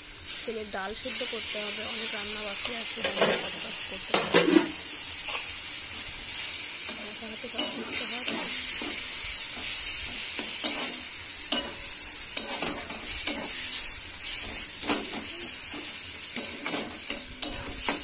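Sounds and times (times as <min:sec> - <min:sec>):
oil sizzling: 0:00.0 - 0:18.0
metal spatula scraping a wok: 0:01.1 - 0:18.0.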